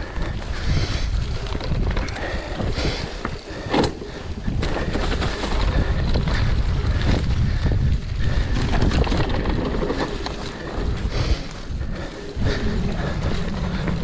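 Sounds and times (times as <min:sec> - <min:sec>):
steady low rumble: 0:00.0 - 0:14.0
wind buffeting microphone: 0:00.0 - 0:14.0.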